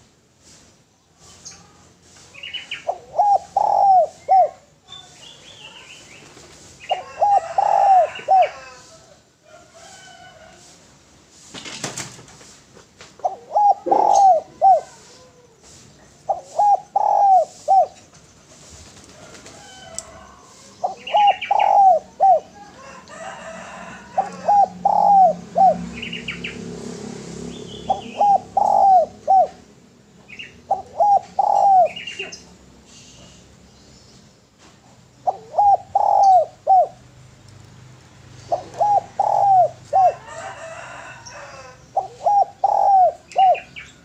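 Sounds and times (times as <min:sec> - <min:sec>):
small birds chirping: 0:00.5 - 0:08.8, 0:19.8 - 0:23.2, 0:24.2 - 0:26.6, 0:27.4 - 0:40.3, 0:40.9 - 0:44.0
dove cooing: 0:02.8 - 0:04.7, 0:06.8 - 0:08.9, 0:13.2 - 0:18.7, 0:19.4 - 0:26.6, 0:27.7 - 0:29.7, 0:30.3 - 0:32.4, 0:35.1 - 0:37.1, 0:38.4 - 0:44.0.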